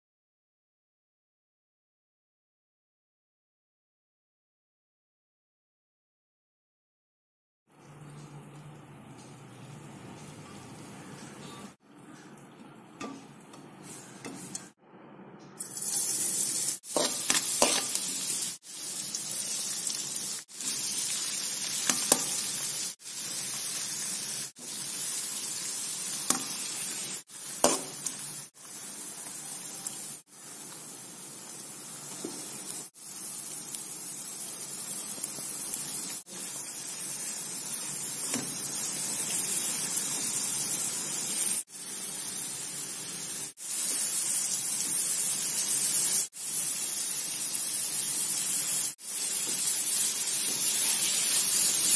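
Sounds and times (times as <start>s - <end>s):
metal spatula scraping a pan: 13.0s - 14.8s, 16.8s - 18.4s
vegetables sizzling in a wok: 13.0s - 14.8s, 15.6s - 51.9s.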